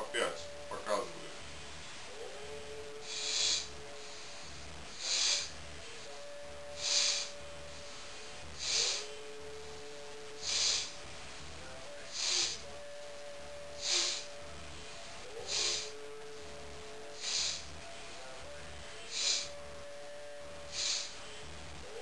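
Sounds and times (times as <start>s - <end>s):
sharp nasal exhalations: 3.0s - 5.6s, 6.8s - 7.4s, 8.6s - 9.1s, 10.4s - 11.0s, 12.1s - 12.7s, 13.8s - 14.4s, 15.4s - 16.0s, 17.2s - 17.7s, 19.1s - 19.6s, 20.7s - 21.2s.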